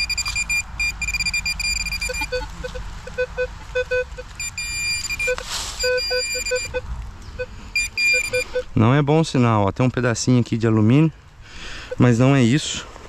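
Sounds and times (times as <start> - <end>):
metal detector beeping: 0.0 - 8.8
scrape of soil or leaves: 5.3 - 6.0.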